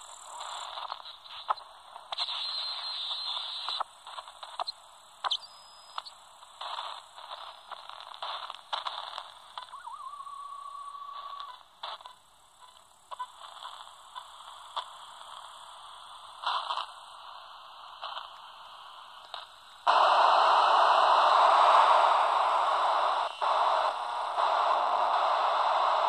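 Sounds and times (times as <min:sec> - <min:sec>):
faint receiver hiss: 0:00.0 - 0:26.0
loud static hiss: 0:00.0 - 0:26.0
brief radio bursts: 0:00.4 - 0:13.9, 0:19.3 - 0:26.0
steady whistle tone: 0:02.3 - 0:03.8, 0:09.6 - 0:11.4.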